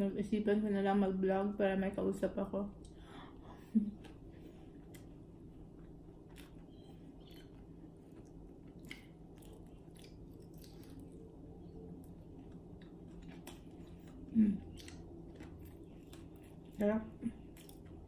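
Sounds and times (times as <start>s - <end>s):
low room hum: 0.0s - 18.0s
person chewing food: 4.0s - 18.0s.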